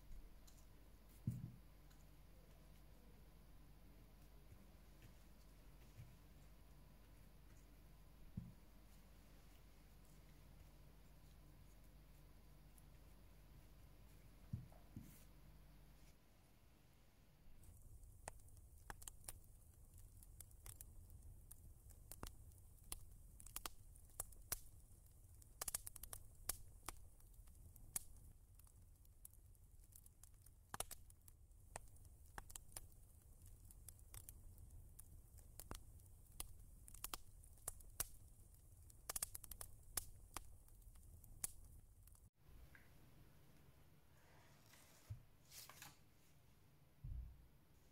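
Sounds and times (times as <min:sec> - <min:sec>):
faint clicks and crackles: 0:00.0 - 0:03.2, 0:17.6 - 0:43.7.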